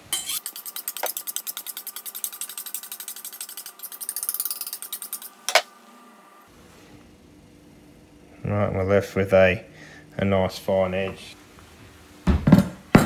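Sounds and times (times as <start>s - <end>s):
knife scraping on honing steel: 0.1s - 5.6s.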